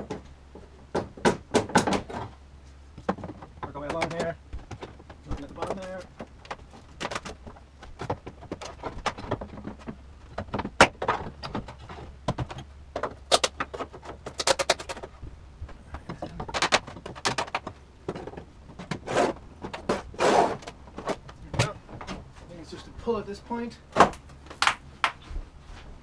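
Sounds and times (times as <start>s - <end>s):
wood and nails creaking: 3.0s - 22.3s
wrecking bar prying wood: 3.1s - 15.2s.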